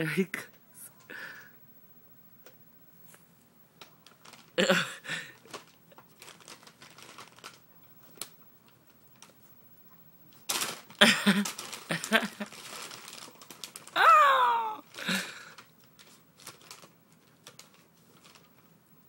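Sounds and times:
paper bag crinkling and rustling: 3.8s - 4.6s, 5.2s - 9.5s, 10.3s - 18.8s.

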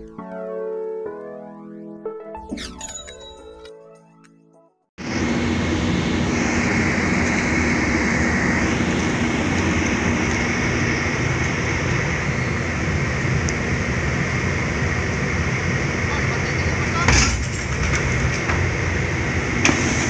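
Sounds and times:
ship machinery rumble and hiss: 5.0s - 20.0s.

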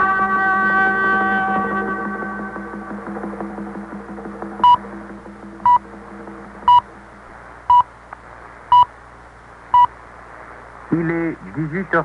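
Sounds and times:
shortwave reception hiss: 0.0s - 12.0s
time signal beeps: 4.6s - 4.9s, 5.6s - 5.9s, 6.6s - 6.9s, 7.7s - 7.9s.

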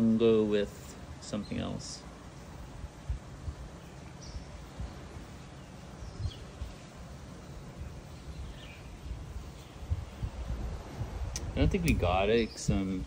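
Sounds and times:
wind rumble on microphone: 2.6s - 13.0s
faint bird chirps: 3.6s - 10.5s.

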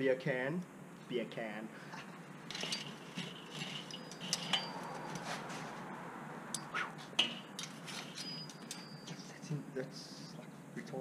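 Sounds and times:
metal tongs clinking on grate: 2.5s - 5.3s, 6.6s - 9.3s.

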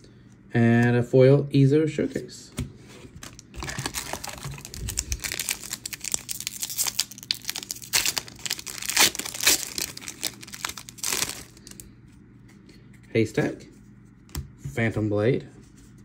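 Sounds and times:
foil wrapper crinkling and tearing: 3.2s - 11.9s.

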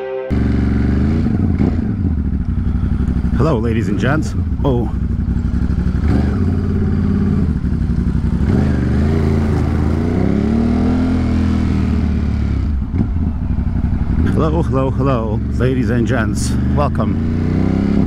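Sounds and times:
motorcycle engine running: 0.3s - 18.0s.

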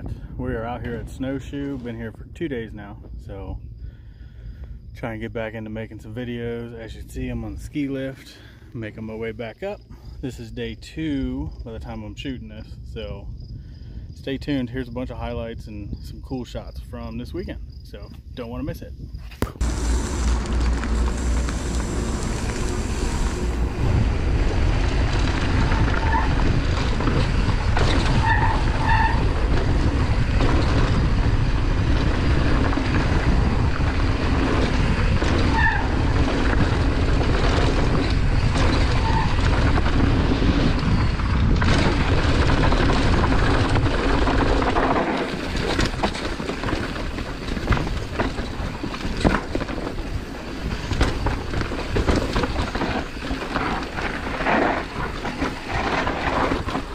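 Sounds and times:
wind rush on microphone: 0.0s - 5.0s, 11.5s - 56.9s
bike tyres rumbling on gravel: 0.0s - 10.0s, 19.2s - 56.9s
bike clattering over rocks: 24.9s - 56.9s.

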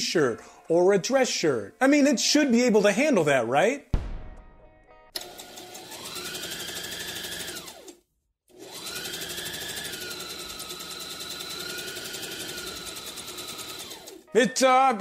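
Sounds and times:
sewing machine stitching: 5.2s - 14.3s.

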